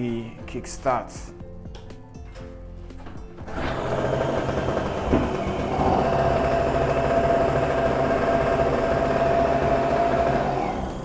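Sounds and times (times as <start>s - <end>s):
portable generator engine running: 3.4s - 11.0s.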